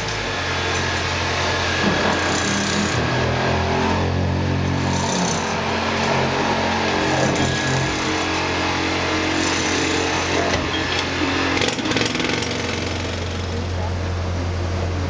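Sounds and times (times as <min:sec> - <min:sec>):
jackhammer breaking rock: 0:01.7 - 0:03.2, 0:09.4 - 0:13.7.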